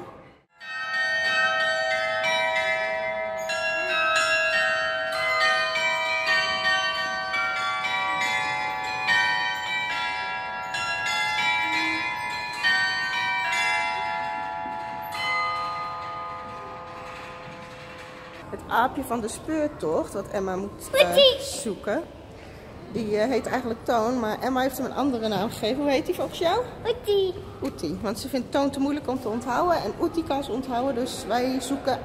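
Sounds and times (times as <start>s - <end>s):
carillon bells playing melody: 0.5s - 18.4s.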